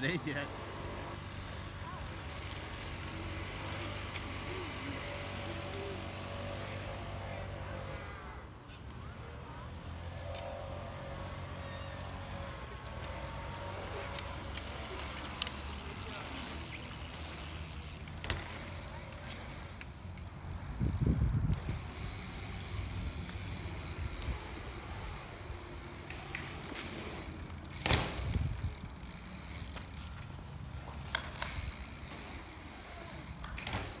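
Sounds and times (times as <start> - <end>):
bike tyres rumbling on dirt: 10.1 - 34.0.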